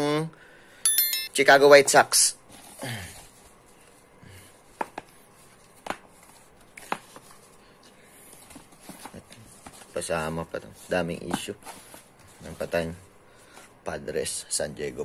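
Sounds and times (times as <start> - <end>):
caps rustling on tiled floor: 4.6 - 13.8.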